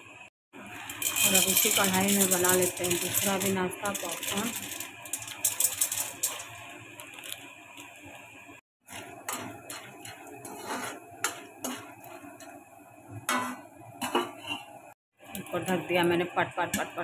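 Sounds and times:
spatula scraping pan: 0:00.8 - 0:06.6, 0:08.8 - 0:12.6, 0:13.3 - 0:14.8
kernels clicking against pan: 0:00.8 - 0:07.4.

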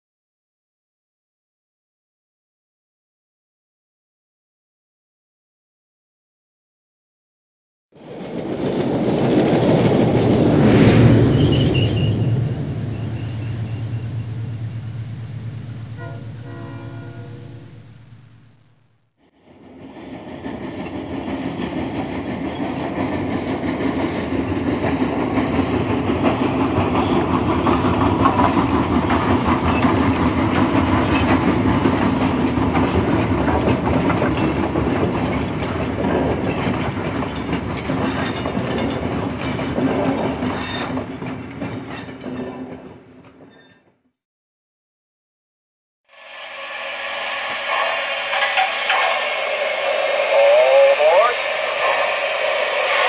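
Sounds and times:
train running on rails: 0:08.0 - 0:18.5, 0:19.3 - 0:44.0, 0:46.1 - 0:53.0.

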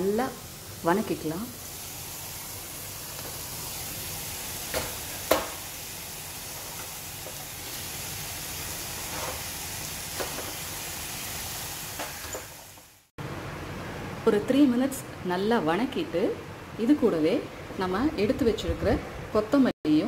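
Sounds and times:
vegetables sizzling in oil: 0:00.0 - 0:13.1
sharp knocks against pan: 0:04.7 - 0:05.6.

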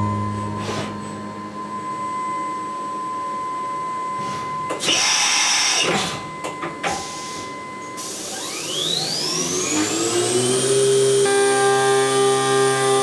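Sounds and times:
milling machine spindle whine: 0:00.6 - 0:13.0
end mill cutting aluminium: 0:08.5 - 0:13.0.

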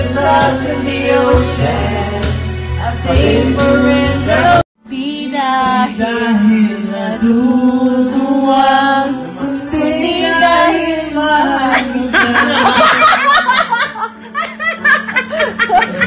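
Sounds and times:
man singing into a microphone: 0:05.6 - 0:12.6.

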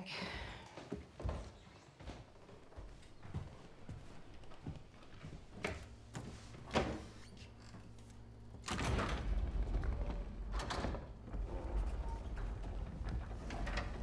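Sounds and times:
sliding panel rumbling: 0:08.2 - 0:14.0.

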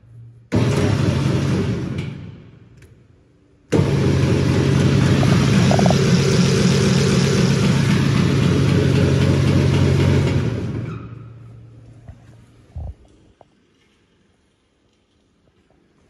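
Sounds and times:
mixer grinder motor running: 0:03.7 - 0:10.7.

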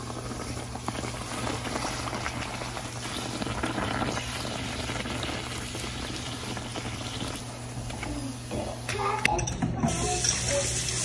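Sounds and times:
dough sizzling in hot oil: 0:00.0 - 0:09.3, 0:09.9 - 0:11.0.

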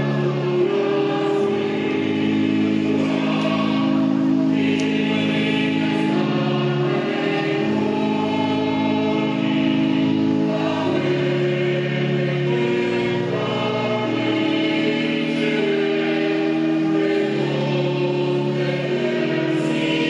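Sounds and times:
choir singing slow chords: 0:00.0 - 0:20.0.

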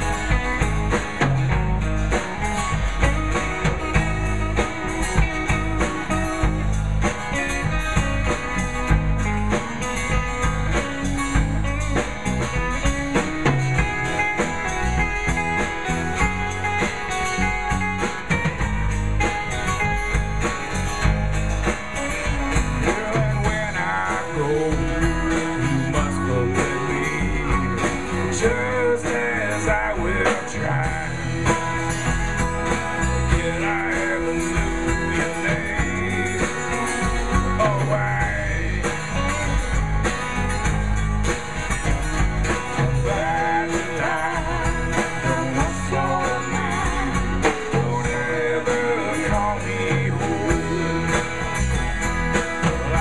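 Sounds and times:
folk-rock band playing: 0:00.0 - 0:53.0
person singing: 0:22.8 - 0:31.8, 0:42.8 - 0:51.5.

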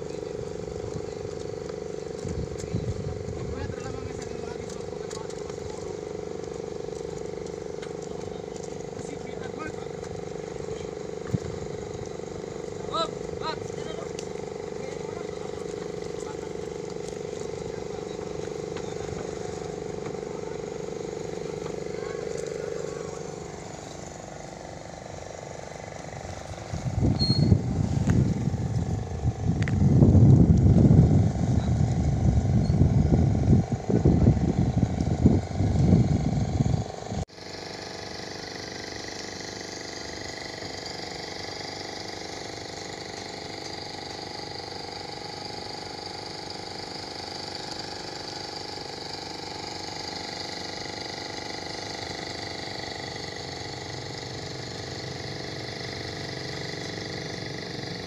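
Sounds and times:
choppy water: 0:00.0 - 0:57.9
wind buffeting microphone: 0:02.2 - 0:04.6, 0:26.2 - 0:37.2.

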